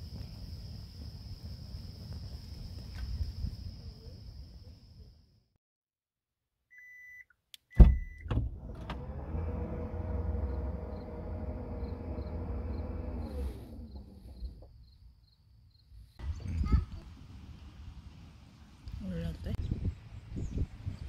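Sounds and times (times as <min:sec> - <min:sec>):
liftgate motor running: 0:08.5 - 0:14.6.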